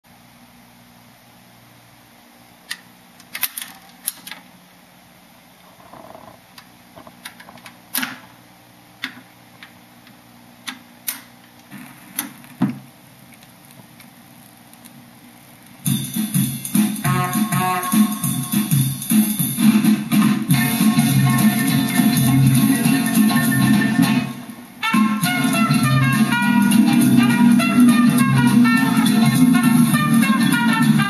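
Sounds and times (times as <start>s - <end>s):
steady low hum: 0.1s - 31.0s
record changer clicks and clunks: 5.8s - 8.4s, 9.0s - 15.0s
music from a record: 15.6s - 31.0s.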